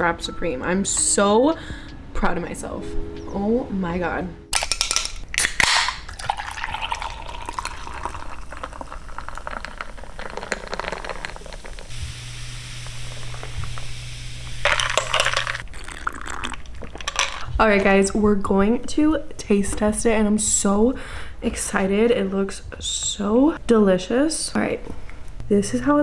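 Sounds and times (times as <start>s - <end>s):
drink fizzing: 5.4s - 17.5s
drink pouring into glass: 5.6s - 11.9s, 14.6s - 17.5s.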